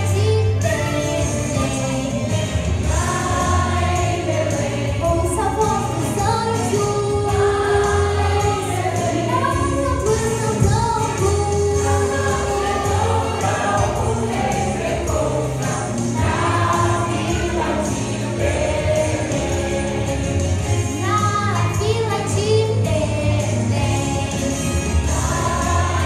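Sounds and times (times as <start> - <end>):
mixed choir singing: 2.0 - 21.2, 23.3 - 26.0.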